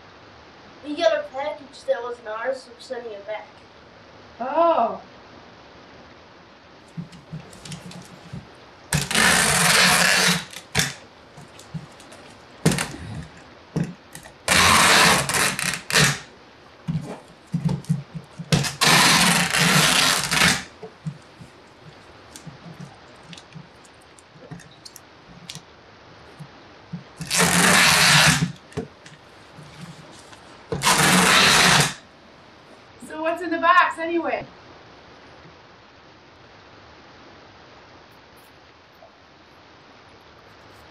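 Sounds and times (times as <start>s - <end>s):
tape taps and rustles: 6.9s - 16.2s, 16.9s - 25.6s
packing tape pulled from dispenser: 7.1s - 13.4s, 14.1s - 16.3s, 16.9s - 20.8s, 27.2s - 28.8s, 30.2s - 32.0s.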